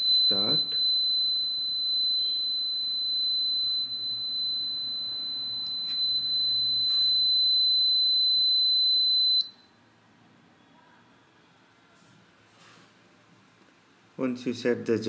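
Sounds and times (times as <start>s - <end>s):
electronic buzzer tone: 0.0s - 9.6s.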